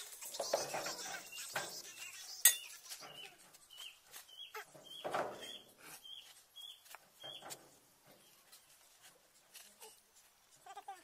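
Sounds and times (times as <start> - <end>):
bird chirping: 0.1 - 7.6.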